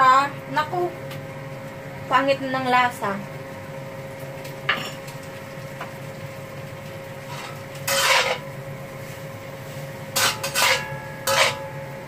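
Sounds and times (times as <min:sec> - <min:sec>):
spatula scraping a wok: 0:07.3 - 0:11.7.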